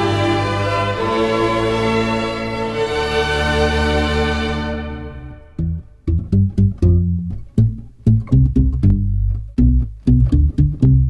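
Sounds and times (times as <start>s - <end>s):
held string chord: 0.0s - 11.0s
low bass: 5.2s - 11.0s
plucked guitar notes: 5.4s - 11.0s.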